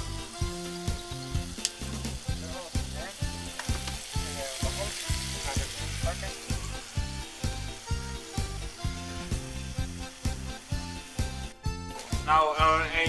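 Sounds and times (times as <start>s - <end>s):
background music with beat: 0.0s - 13.0s
meat sizzling in a pan: 0.0s - 13.0s.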